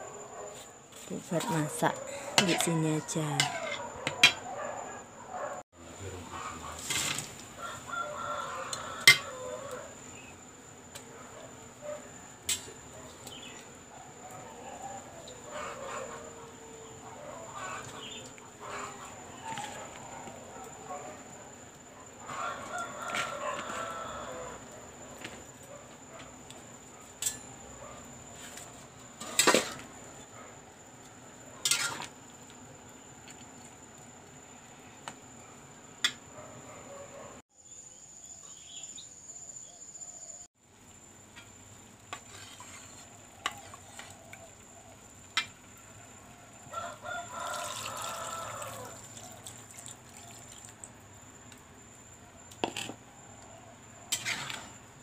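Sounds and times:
rooster crowing: 0:01.6 - 0:05.6, 0:07.5 - 0:10.1, 0:22.2 - 0:25.0, 0:46.0 - 0:49.6.

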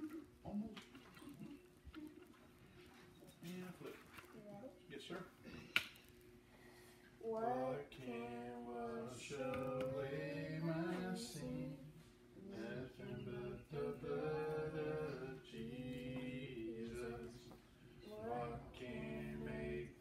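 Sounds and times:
boy singing a hymn: 0:07.2 - 0:20.0.

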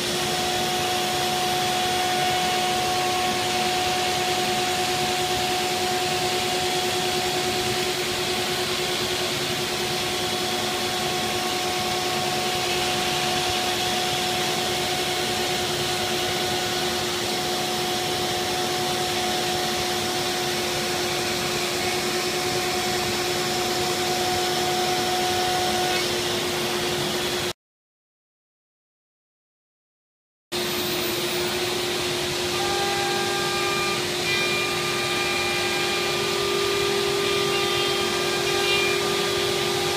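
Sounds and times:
router spindle whine: 0:00.0 - 0:27.5, 0:30.6 - 0:39.9.

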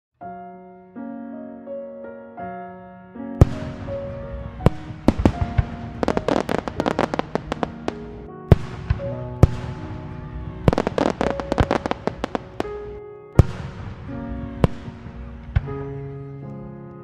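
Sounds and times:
background music: 0:00.2 - 0:17.0
fireworks bangs and crackling: 0:03.4 - 0:15.7.

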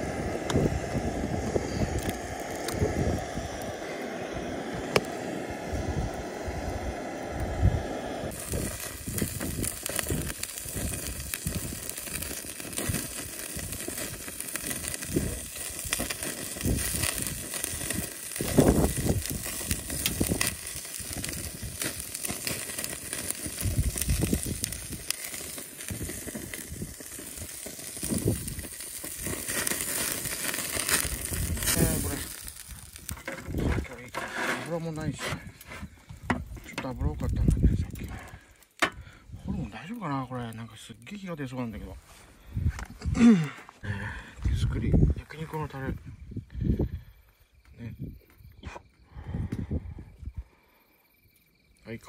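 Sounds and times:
steak sizzling on a grill: 0:00.0 - 0:40.6
fat popping in flame: 0:00.0 - 0:50.0.

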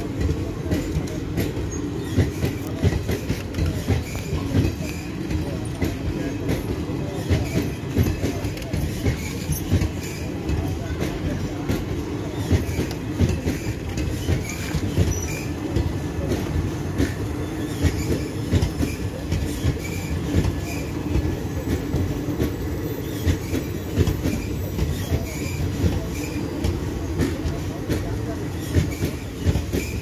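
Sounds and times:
train wheels rumbling on rail: 0:00.0 - 0:30.0
high wheel squeaks: 0:01.4 - 0:05.7, 0:12.2 - 0:16.4, 0:17.0 - 0:27.4.

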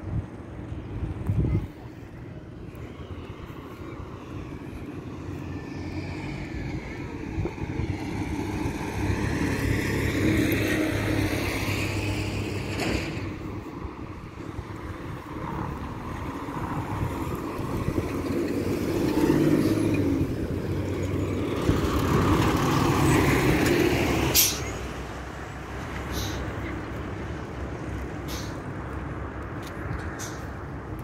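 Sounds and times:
low traffic rumble: 0:00.0 - 0:31.0
vehicle passing by: 0:01.7 - 0:31.0.

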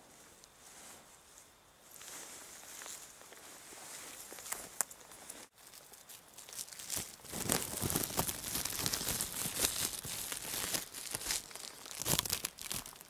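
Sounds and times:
crinkly rustling and crackling: 0:01.9 - 0:13.0.

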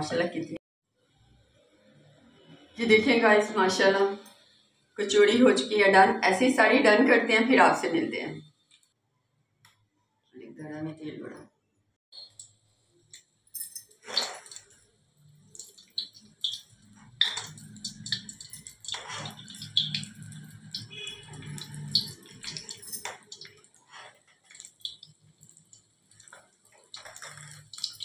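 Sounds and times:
oil sizzling and crackling: 0:13.9 - 0:28.0.

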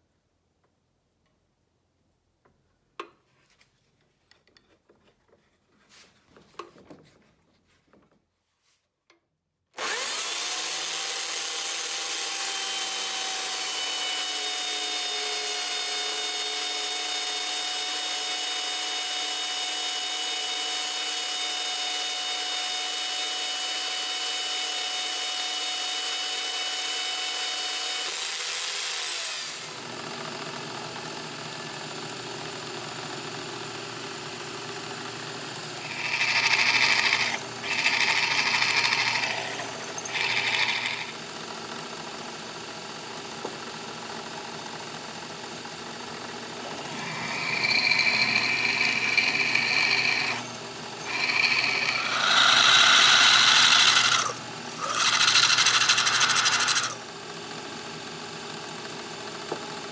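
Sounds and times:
band saw cutting steel: 0:09.8 - 0:29.8, 0:35.5 - 0:41.9, 0:46.6 - 0:57.0
drill bit grinding into steel: 0:09.8 - 0:29.8, 0:35.6 - 0:41.9, 0:46.6 - 0:57.0
drill press running: 0:28.1 - 0:57.0.

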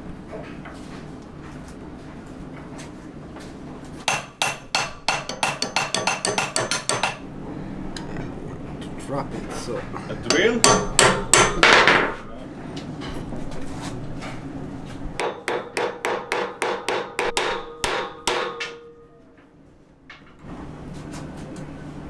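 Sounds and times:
hammer tapping metal punch: 0:04.1 - 0:07.2, 0:10.2 - 0:12.2, 0:15.2 - 0:19.0.

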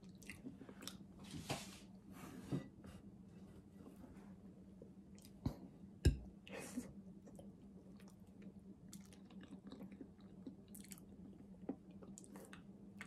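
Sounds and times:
chewing banana: 0:07.2 - 0:13.0.

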